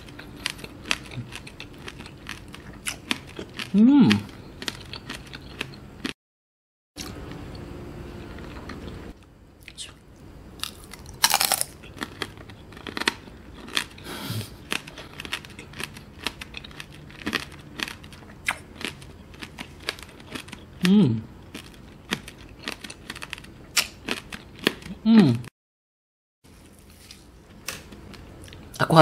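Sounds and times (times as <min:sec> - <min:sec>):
crackling chewing crunches: 0:00.0 - 0:06.2, 0:08.2 - 0:25.0
candy shell crunching: 0:10.6 - 0:14.0.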